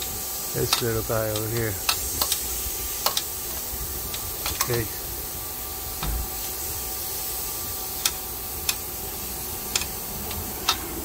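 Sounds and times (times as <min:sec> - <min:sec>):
steady hiss: 0:00.0 - 0:11.0
hand ratchet clicks: 0:00.7 - 0:02.4, 0:03.0 - 0:03.3, 0:08.0 - 0:08.9, 0:09.7 - 0:10.8.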